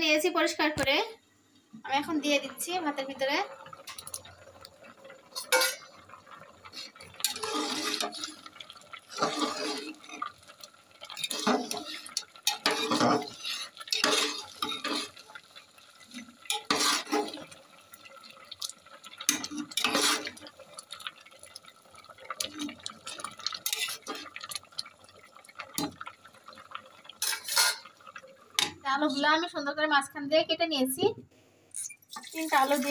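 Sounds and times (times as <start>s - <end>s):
water sloshing in a pot: 1.8s - 29.4s, 31.9s - 32.9s
metal spoon scraping a pot: 5.3s - 5.9s, 7.2s - 8.5s, 9.1s - 10.3s, 11.1s - 15.2s, 16.5s - 17.4s, 19.3s - 20.5s, 23.6s - 24.4s, 27.2s - 27.9s.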